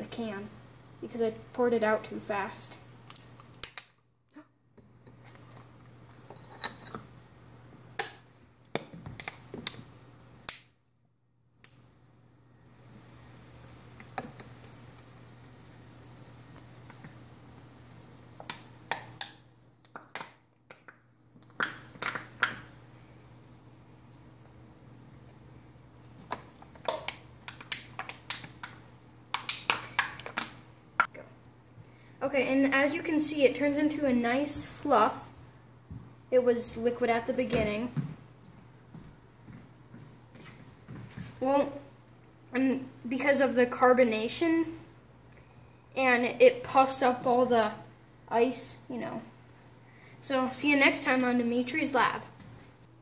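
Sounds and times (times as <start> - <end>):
can clicking and tapping over ice: 18.4 - 22.7, 26.3 - 30.6
can crackling and clicking: 26.3 - 30.6.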